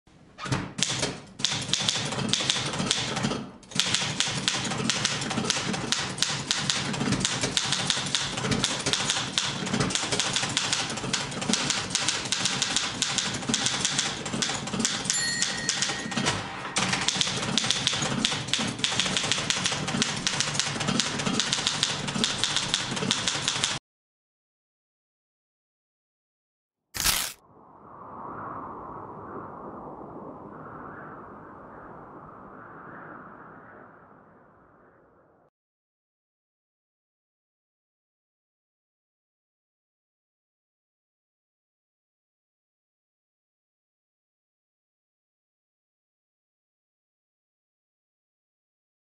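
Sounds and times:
manual typewriter typing: 0:00.8 - 0:23.8
typewriter bell ringing: 0:14.9 - 0:16.4.

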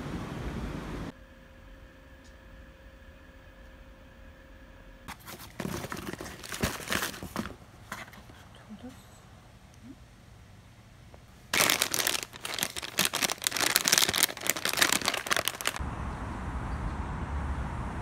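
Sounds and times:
package wrapping crinkling: 0:05.1 - 0:07.6, 0:11.4 - 0:15.8
low outdoor rumble: 0:06.0 - 0:18.0.

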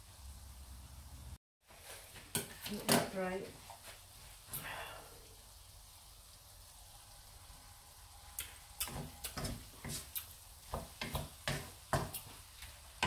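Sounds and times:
wooden spatula scraping frying pan: 0:08.9 - 0:13.0.

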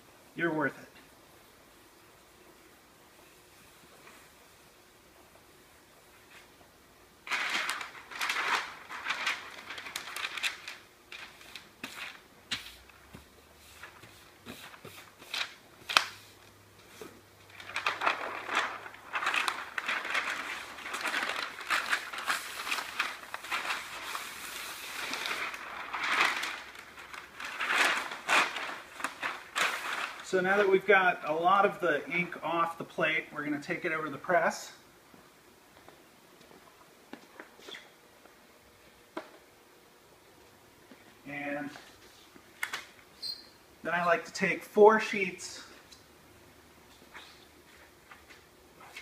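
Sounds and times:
newsprint rustling and crinkling: 0:07.2 - 0:12.3, 0:17.4 - 0:30.9.

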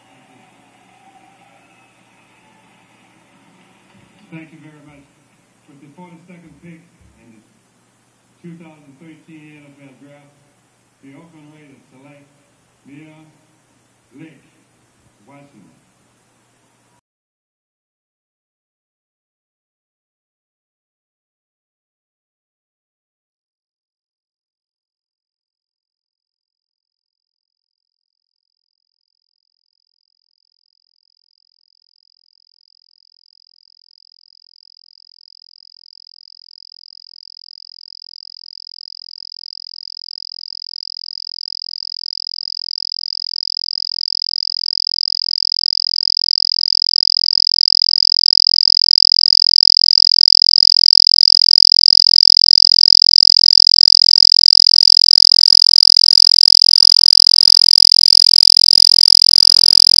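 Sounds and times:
steady high-pitched tone: 0:49.4 - 1:00.0
faint low buzz: 0:49.6 - 1:00.0.

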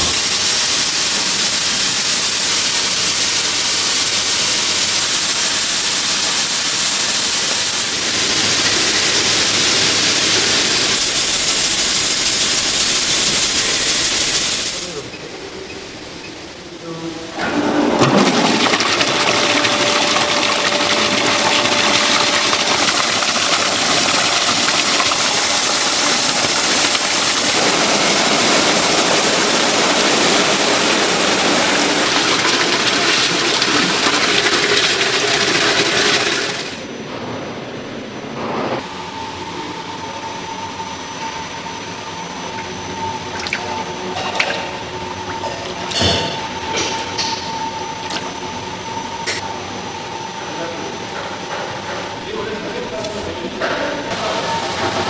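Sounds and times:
machinery rushing noise: 0:00.0 - 0:55.0
machine hum with high whine: 0:36.8 - 0:55.0.

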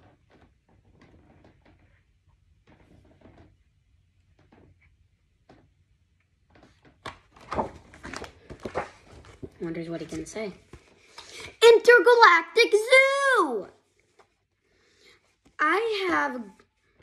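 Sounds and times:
book pages rustling: 0:06.6 - 0:11.2.

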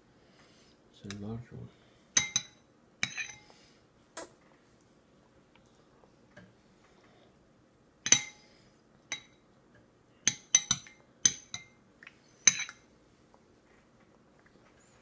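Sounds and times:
spoon clinking against bowl: 0:12.5 - 0:12.8.

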